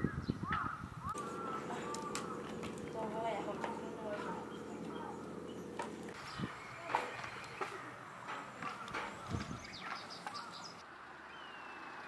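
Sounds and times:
light knocks and clicks of boats: 1.2s - 10.5s.

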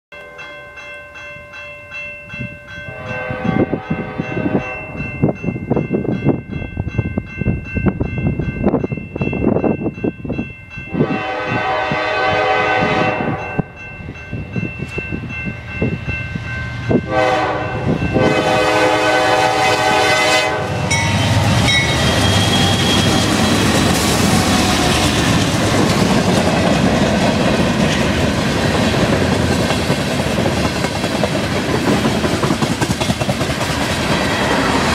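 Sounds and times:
crossing bell ringing: 0.1s - 31.6s, 33.4s - 34.9s
train wheels rumbling on rails: 2.3s - 34.9s
train horn blasts: 2.8s - 5.2s, 10.9s - 13.8s, 16.9s - 23.7s.

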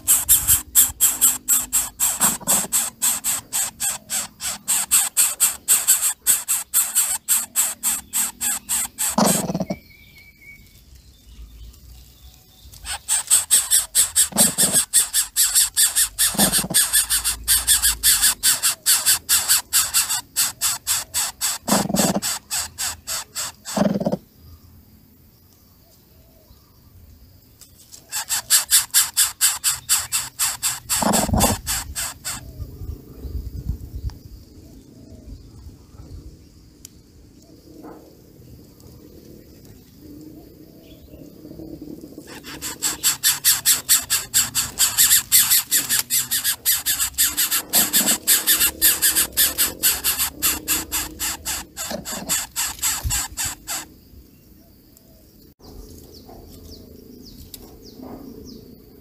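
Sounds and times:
bird chick squeaky begging calls: 0.0s - 9.8s, 12.7s - 24.1s, 28.0s - 32.6s, 42.2s - 53.9s
lower single bird calls: 0.0s - 10.7s.

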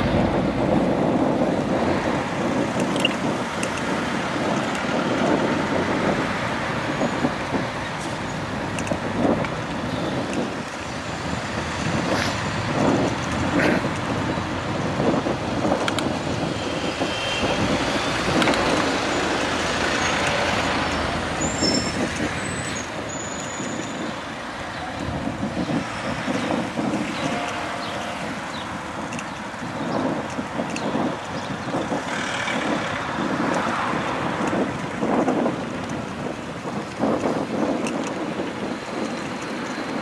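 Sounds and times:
motor vehicles passing: 0.0s - 37.6s
short high squeals: 21.4s - 23.9s.

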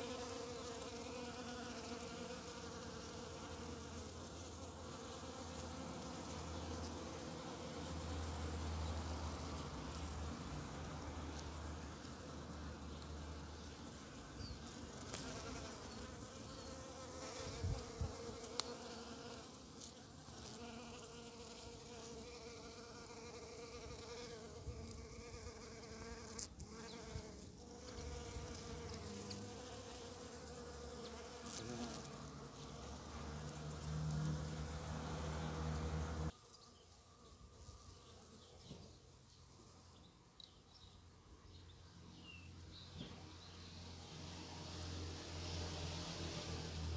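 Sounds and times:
bee buzzing in flight: 0.0s - 36.3s.

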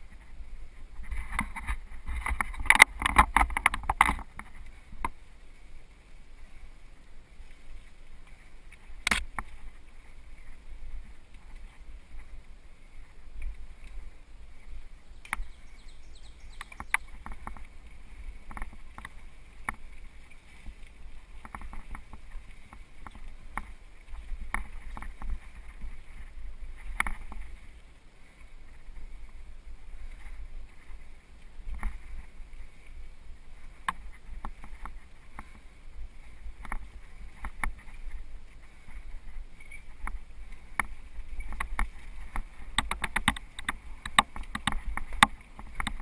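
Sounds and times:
wind and tyres rumbling: 0.0s - 46.0s
bike clicks and rattles: 1.0s - 5.2s, 8.7s - 9.8s, 16.5s - 27.6s, 39.5s - 46.0s.

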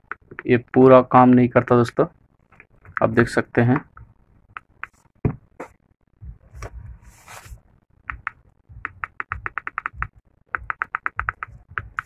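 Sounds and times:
keypad buttons clicking: 8.1s - 12.0s.

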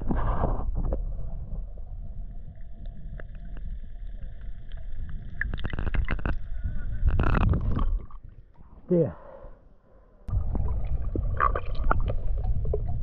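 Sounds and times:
water sloshing and splashing: 10.3s - 13.0s.

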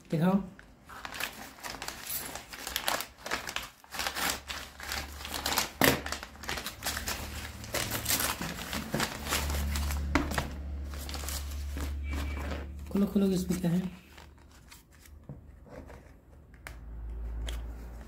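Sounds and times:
paper tearing and crumpling: 0.9s - 15.2s.

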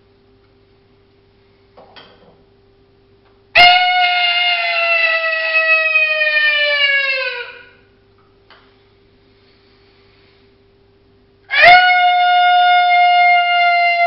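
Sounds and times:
coyote howl call: 3.6s - 7.8s, 11.5s - 14.0s.

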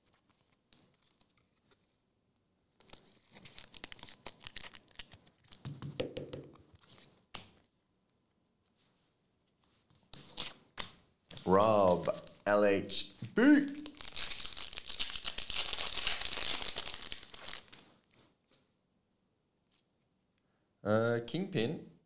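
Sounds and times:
foil wrapper tearing and crinkling: 2.9s - 5.6s, 13.7s - 17.8s.

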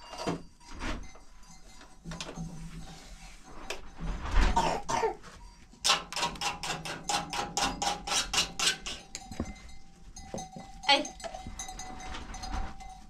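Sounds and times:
paintbrush strokes on a door: 2.6s - 3.6s.

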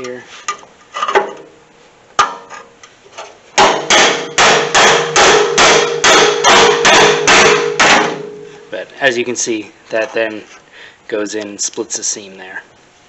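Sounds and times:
hammer striking metal chisel: 3.6s - 8.5s
sheet metal ringing: 3.6s - 8.8s.

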